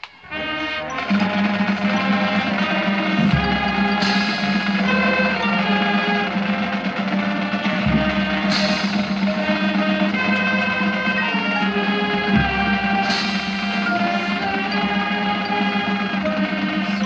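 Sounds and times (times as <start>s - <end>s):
marching band brass chords: 0.0s - 17.0s
cymbal crash: 1.4s - 15.6s
deep drum hit: 6.5s - 10.6s, 12.2s - 14.6s.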